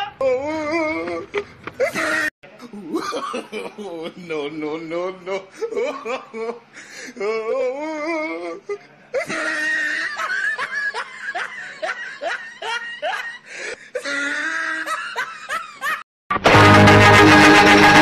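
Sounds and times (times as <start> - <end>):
person laughing heartily: 0.5 - 4.2, 5.3 - 8.4, 9.2 - 16.0
music: 16.3 - 18.0.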